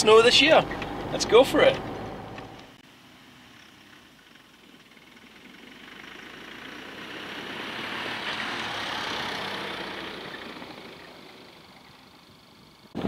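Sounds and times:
pickup truck driving past on snow: 0:03.5 - 0:12.8.

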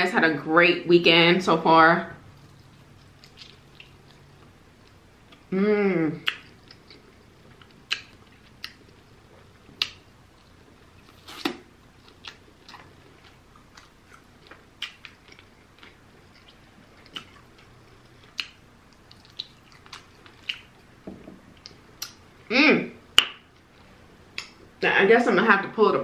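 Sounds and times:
person chewing: 0:02.4 - 0:05.5, 0:06.2 - 0:20.9
wet mouth smacks and clicks: 0:06.2 - 0:06.8, 0:07.9 - 0:08.8, 0:23.2 - 0:23.4.

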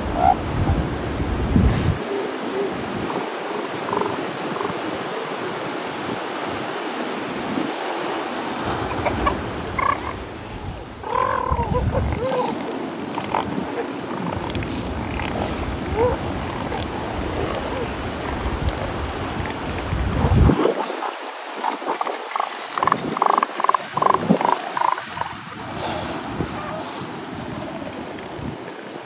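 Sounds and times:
elephant seals calling: 0:00.0 - 0:00.5, 0:01.9 - 0:05.4, 0:08.8 - 0:18.1.

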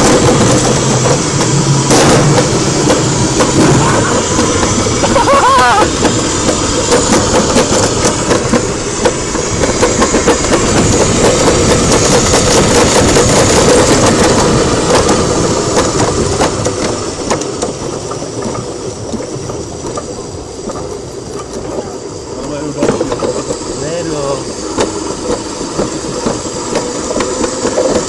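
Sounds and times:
bobsled rattling down steel track: 0:00.0 - 0:28.0
sharp clicks and knocks: 0:05.9 - 0:21.8, 0:24.6 - 0:28.0.

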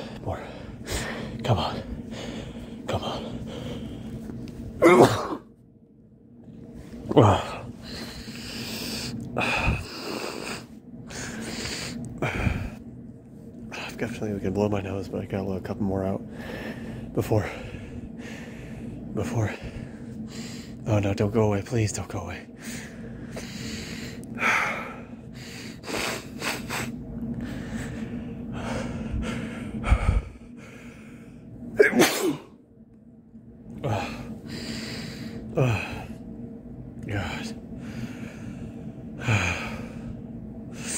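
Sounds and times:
man sneezing: 0:04.8 - 0:05.5, 0:31.8 - 0:32.6.

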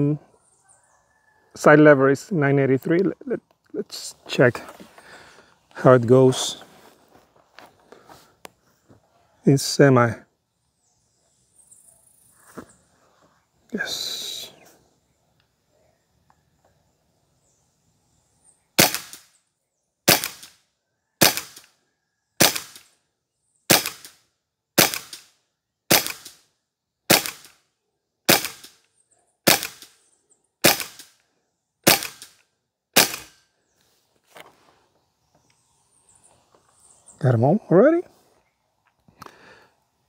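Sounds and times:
air rifle shots: 0:18.8 - 0:19.3, 0:20.1 - 0:20.5, 0:21.2 - 0:21.7, 0:22.4 - 0:22.8, 0:23.7 - 0:24.2, 0:24.8 - 0:25.3, 0:25.9 - 0:26.4, 0:27.1 - 0:27.6, 0:28.3 - 0:28.8, 0:29.4 - 0:30.0, 0:30.6 - 0:31.2, 0:31.8 - 0:32.4, 0:33.0 - 0:33.4.

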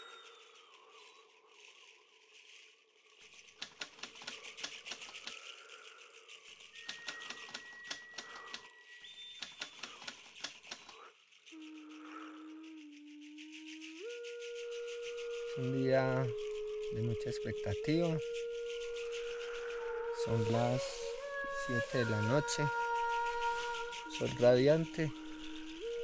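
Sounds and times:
typewriter key clacks: 0:03.6 - 0:05.4, 0:06.9 - 0:08.6, 0:09.4 - 0:10.9.

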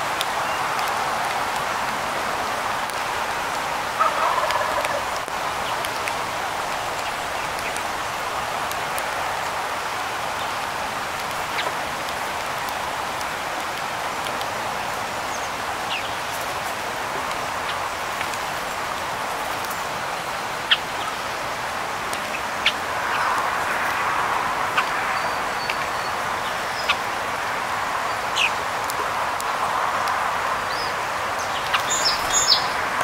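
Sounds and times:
rain pattering on an umbrella: 0:00.0 - 0:33.0
bird call: 0:30.7 - 0:32.8.

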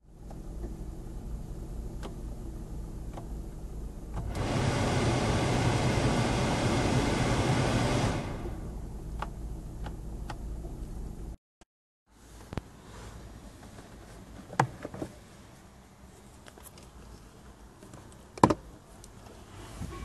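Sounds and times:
steady low hum: 0:00.1 - 0:11.4
heater blower fan rushing air: 0:04.2 - 0:09.0.

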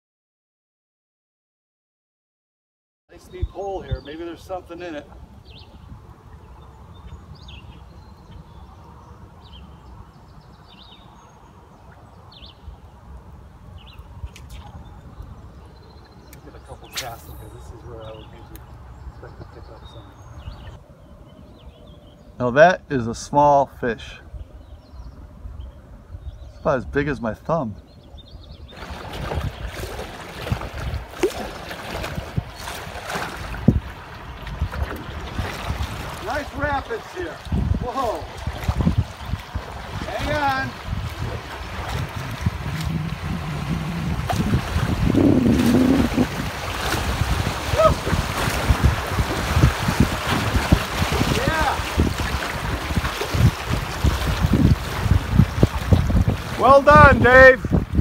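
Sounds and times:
water splashing around paddles: 0:28.7 - 0:58.0
steady low rumble: 0:40.8 - 0:46.6.

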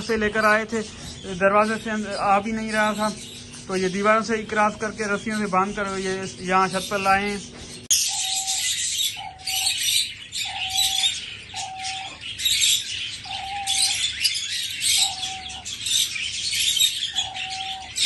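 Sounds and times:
small cage birds chirping: 0:00.0 - 0:18.0
dove cooing: 0:06.7 - 0:18.0.

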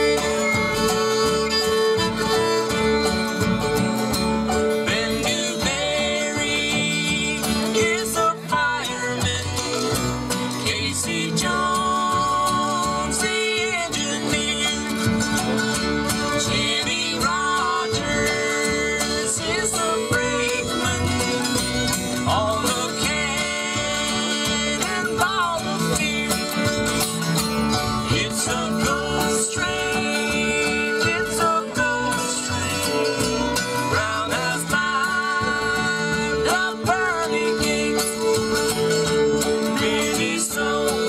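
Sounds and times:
bluegrass band playing: 0:00.0 - 0:41.0.

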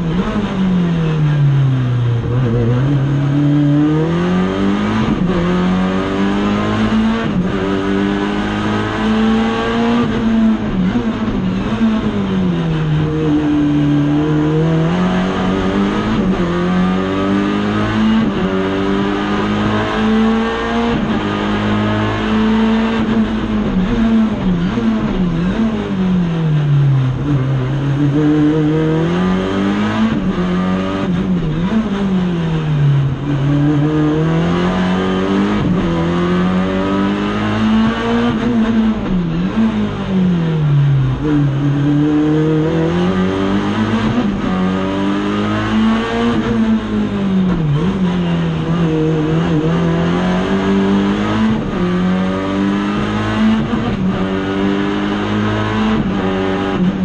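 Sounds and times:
race car engine revving: 0:00.0 - 0:57.0.

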